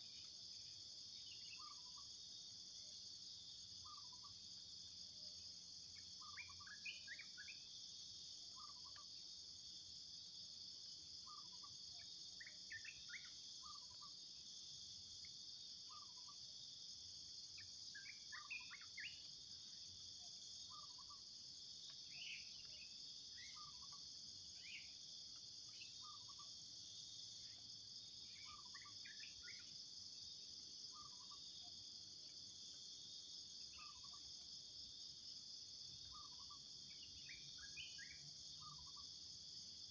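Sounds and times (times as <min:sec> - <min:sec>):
insect chorus drone: 0:00.0 - 0:39.9.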